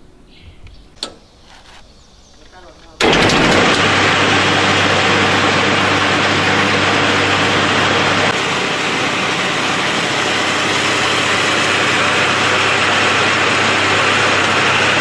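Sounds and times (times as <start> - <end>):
baler machinery running: 3.0 - 15.0.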